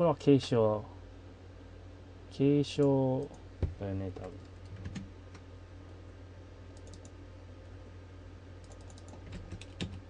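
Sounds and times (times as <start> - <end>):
steady low hum: 0.0 - 10.0
keyboard and mouse clicks: 4.2 - 5.4, 6.8 - 7.2, 8.6 - 10.0.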